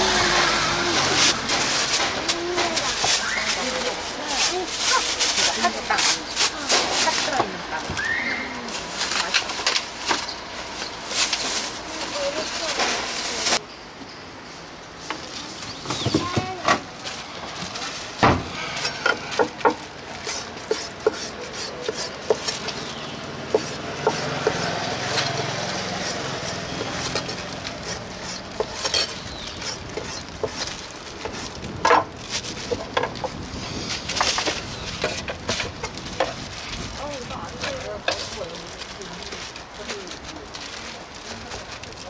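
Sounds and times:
utensils and dishes clattering: 0.0 - 7.6, 18.8 - 33.4.

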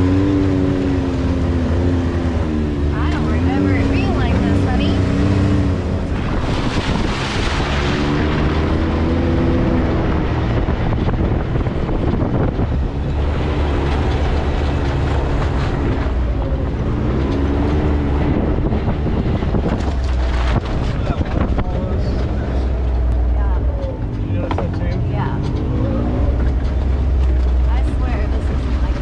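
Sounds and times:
vehicle engine revving: 0.0 - 29.0
wind noise on microphone: 6.0 - 22.0.

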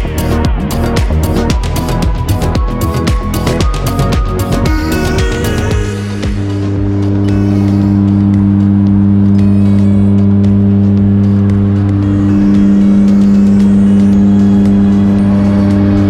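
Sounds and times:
plane engines droning in cabin: 5.7 - 16.0.

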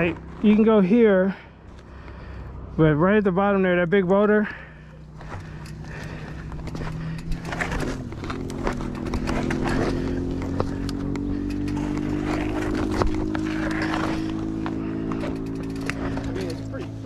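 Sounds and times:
steady low hum: 0.0 - 17.0
bike knocking and clicking: 5.1 - 16.8
footsteps on loose rock: 5.2 - 16.4.

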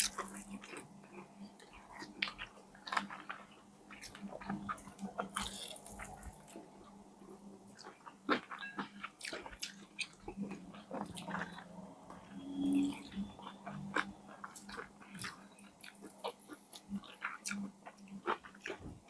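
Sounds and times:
biting and chewing: 0.0 - 6.7.

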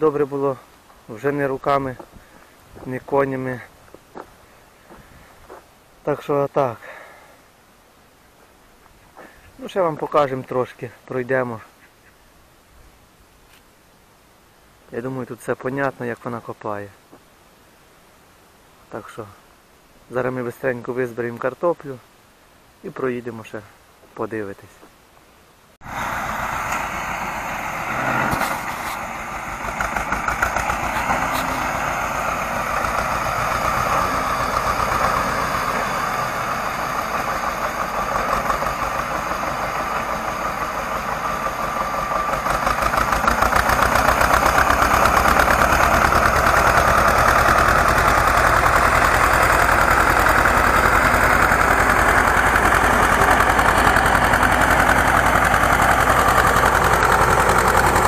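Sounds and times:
tractor engine running: 25.8 - 58.0.

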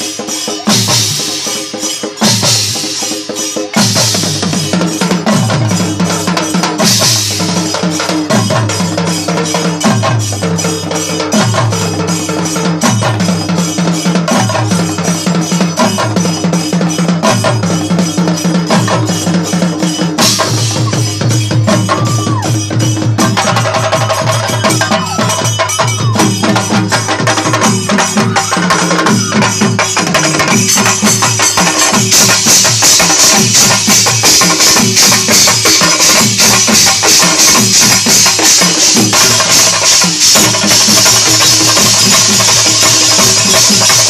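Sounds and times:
cymbals crashing: 0.0 - 44.0
metal drums playing: 0.0 - 44.0
stick-beaten barrel drums: 0.0 - 44.0.

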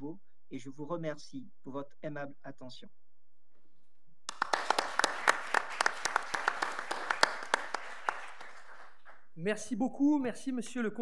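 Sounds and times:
audience applauding: 4.3 - 9.3.

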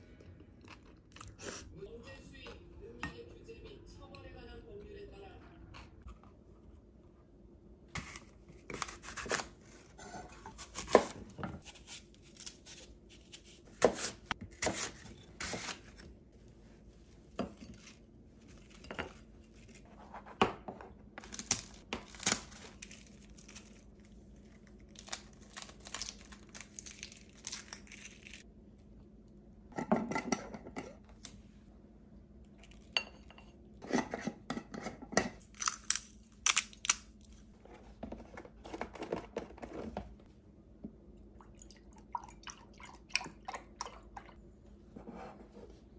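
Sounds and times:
knife cutting apple on board: 8.0 - 15.9.

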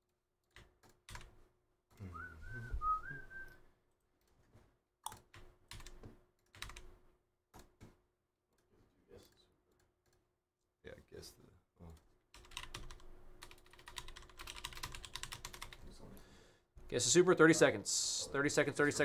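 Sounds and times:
computer keyboard clicks: 0.4 - 1.3, 5.0 - 6.9, 12.4 - 15.8
person whistling: 2.0 - 3.6.

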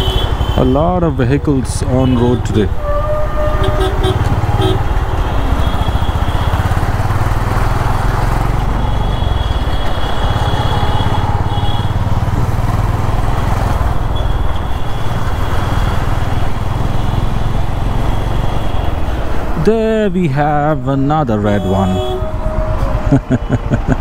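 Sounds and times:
road and wind noise: 0.0 - 24.0
motorcycle engine running: 3.3 - 18.6.

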